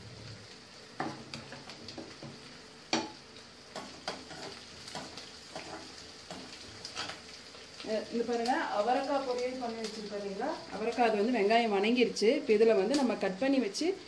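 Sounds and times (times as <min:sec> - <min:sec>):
onions sizzling in hot oil: 0:00.0 - 0:14.0
spoon scraping and knocking pan: 0:01.0 - 0:07.2.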